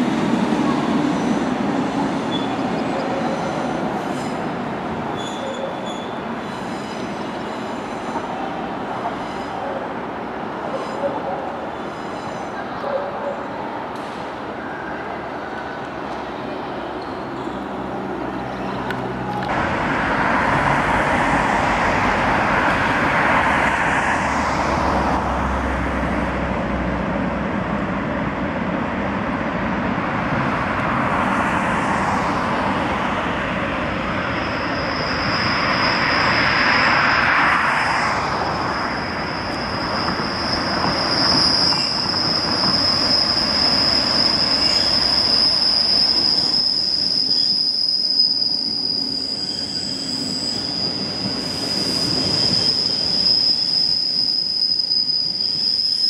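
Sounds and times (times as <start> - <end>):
train rushing on rails: 0.0 - 56.0
high wheel squeal: 2.0 - 8.2, 34.1 - 56.0.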